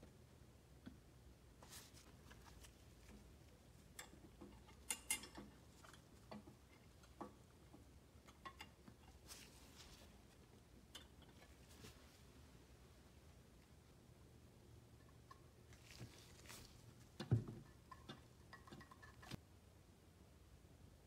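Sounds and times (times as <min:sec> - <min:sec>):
small metal clicks and taps: 0:03.9 - 0:09.2, 0:17.2 - 0:19.4.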